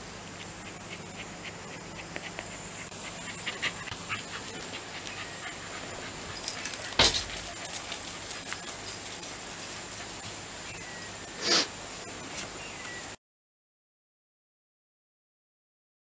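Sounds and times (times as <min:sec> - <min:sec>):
dog panting softly: 0:00.2 - 0:10.6
small clicks and rustles: 0:06.1 - 0:10.5.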